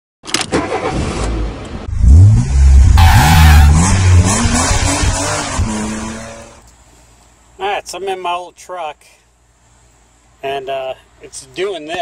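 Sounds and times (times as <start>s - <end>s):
car engine revving: 0.7s - 6.6s.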